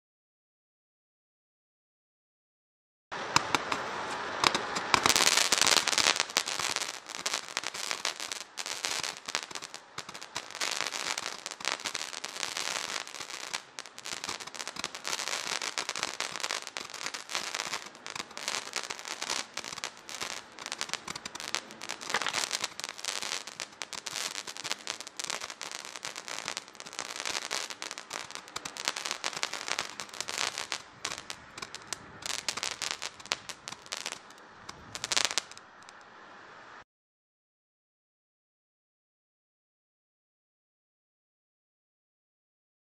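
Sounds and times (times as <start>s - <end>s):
roman candles firing with crackle: 3.4s - 36.0s.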